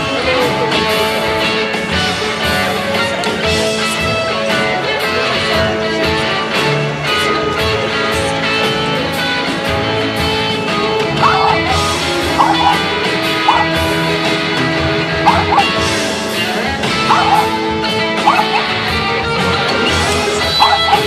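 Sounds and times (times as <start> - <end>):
guitar background music: 0.0 - 21.0
short high guitar notes: 11.1 - 21.0.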